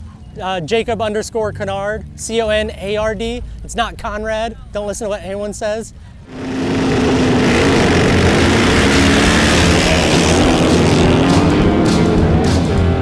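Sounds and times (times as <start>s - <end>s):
motorcycle engine running hard: 6.3s - 13.0s.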